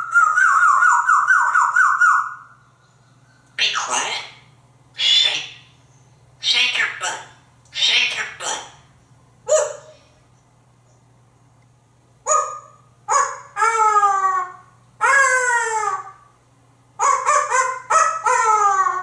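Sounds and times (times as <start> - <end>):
parrot imitating dog barks: 6.4 - 8.8, 9.5 - 10.0, 12.3 - 16.2, 17.0 - 19.0.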